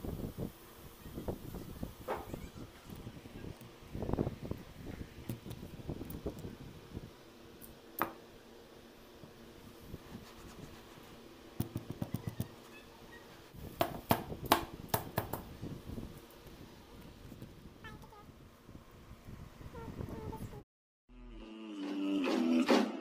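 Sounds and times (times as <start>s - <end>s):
cloth rubbing on mesh sieve: 9.7s - 11.3s.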